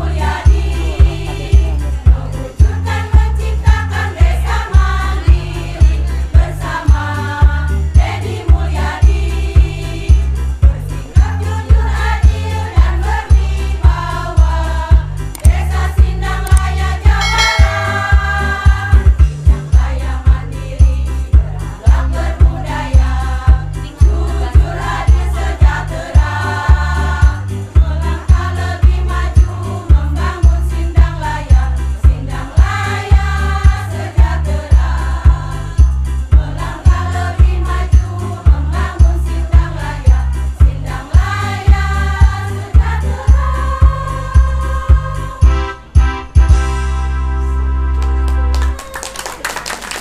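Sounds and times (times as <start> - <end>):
women's choir singing: 0.0 - 10.4, 11.2 - 45.6
heavy bass beat: 15.4 - 19.8.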